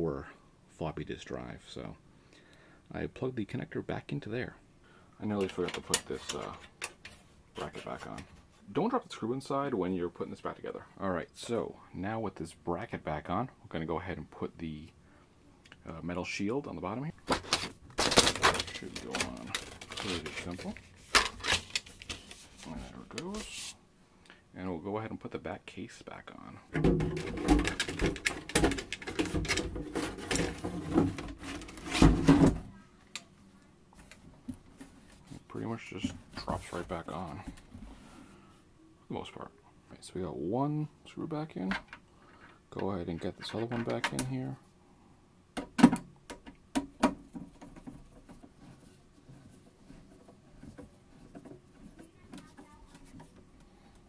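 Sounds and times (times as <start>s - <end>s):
plastic case scraping and knocking: 26.8s - 32.6s.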